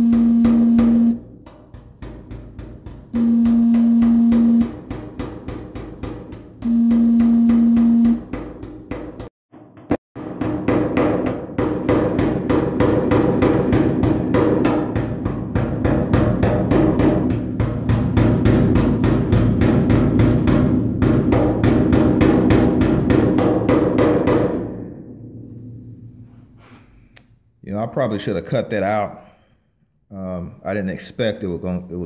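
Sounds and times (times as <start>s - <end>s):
hammer tapping on sheet steel: 0.0s - 22.9s.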